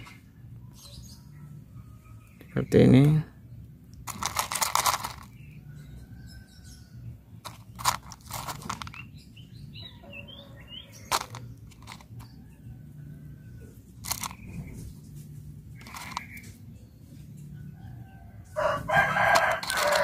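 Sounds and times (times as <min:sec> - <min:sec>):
birds chirping: 0:00.0 - 0:20.0
seeds crunching into soil: 0:04.0 - 0:05.4, 0:07.4 - 0:09.1, 0:14.0 - 0:14.8, 0:15.8 - 0:16.6, 0:19.0 - 0:20.0.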